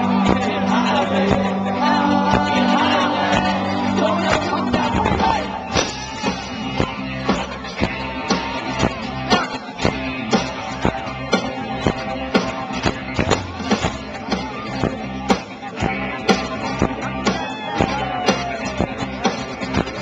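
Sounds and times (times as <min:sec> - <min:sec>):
person singing: 0:00.0 - 0:06.9
drums beating: 0:00.0 - 0:20.0.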